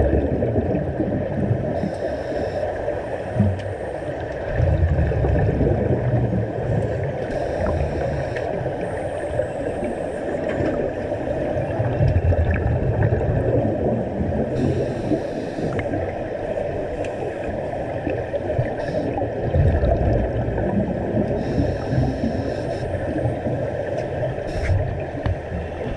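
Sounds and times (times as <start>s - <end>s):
bubbles gurgling underwater: 0.0s - 25.9s
diver breathing through regulator: 7.3s - 10.2s, 14.6s - 15.9s, 21.3s - 23.2s, 24.4s - 24.9s
air hissing: 24.5s - 24.8s.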